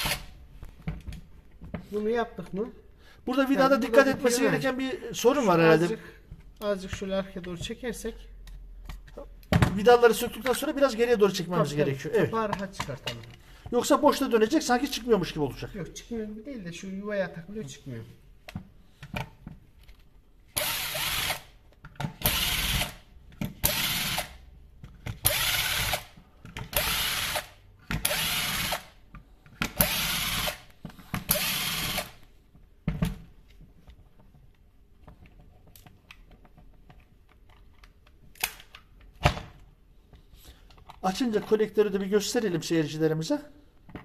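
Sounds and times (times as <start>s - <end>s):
power drill whirring: 20.6s - 21.5s, 22.2s - 23.0s, 23.6s - 24.4s, 25.2s - 28.9s, 29.8s - 30.7s, 31.3s - 32.2s.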